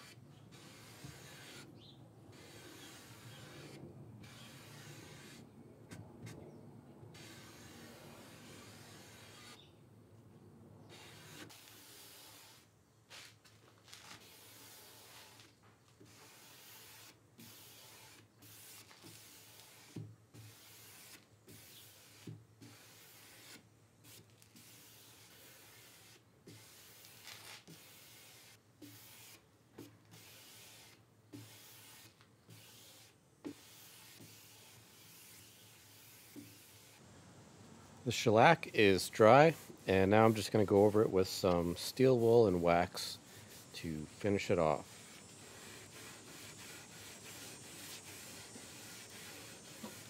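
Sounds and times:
cloth pad rubbing on wood: 38.8s - 50.0s.

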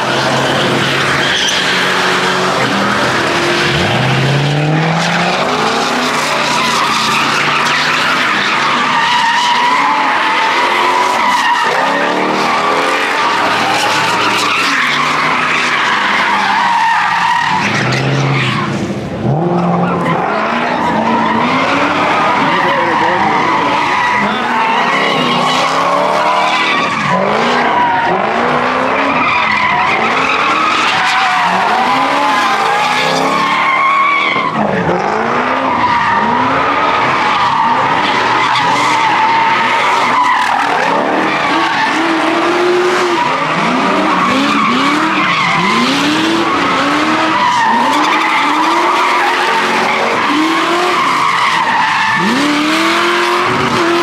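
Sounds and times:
tyres squealing: 0.0s - 34.9s, 35.6s - 54.0s
car engine revving: 0.0s - 54.0s.

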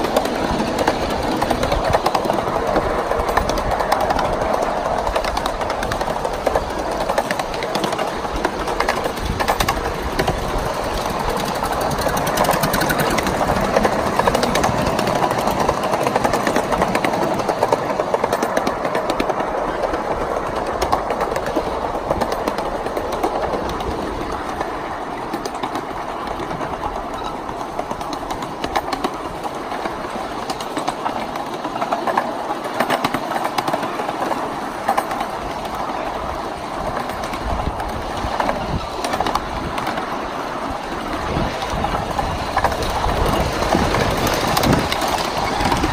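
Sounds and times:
small clicks and rattles: 0.0s - 24.7s
train wheels rolling on track: 0.0s - 45.9s.

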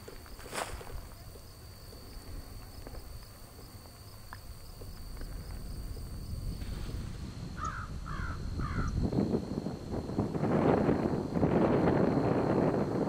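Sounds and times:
wind rumbling on microphone: 0.0s - 13.0s
crow cawing: 7.6s - 8.9s.

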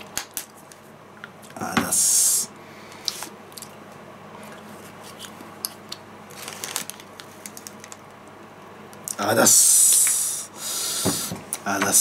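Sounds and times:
plastic packet squishing rustle: 6.3s - 8.2s.

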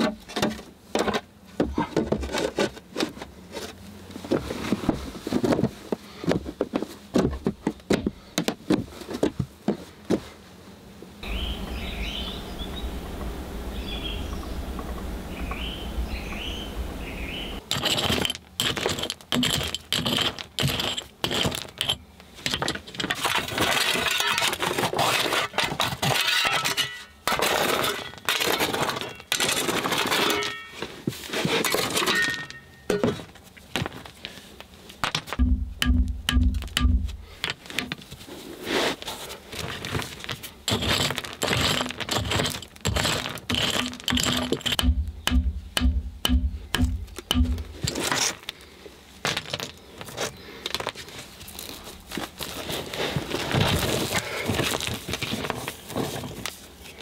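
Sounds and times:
birds chirping: 11.2s - 17.6s
stones clattering: 17.7s - 24.7s, 39.6s - 48.5s, 49.2s - 51.0s
axe chopping stony soil: 35.0s - 37.2s, 41.6s - 48.0s.

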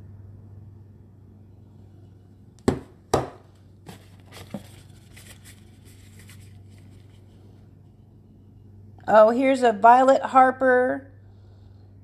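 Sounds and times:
tissue paper rustling: 3.9s - 7.4s.

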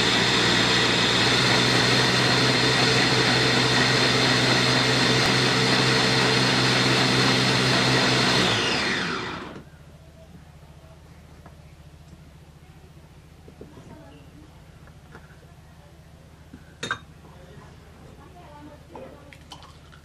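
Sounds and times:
electric food chopper running: 0.0s - 9.7s.

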